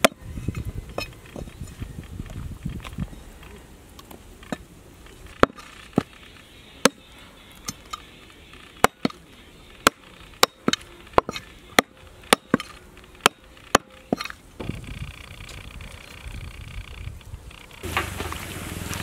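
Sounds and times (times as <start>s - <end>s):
meat cleaver chopping on wood: 8.8s - 9.2s, 9.8s - 14.3s.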